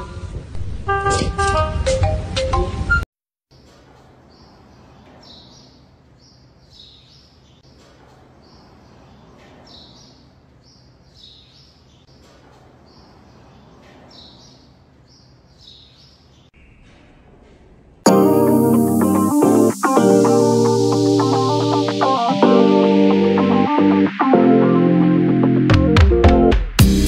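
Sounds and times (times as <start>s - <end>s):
small birds chirping: 3.6s - 16.9s
background hiss: 18.0s - 22.4s.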